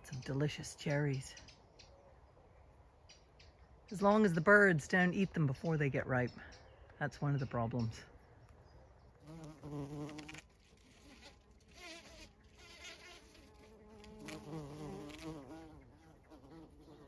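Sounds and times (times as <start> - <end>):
bumblebee buzzing: 9.2 - 17.0.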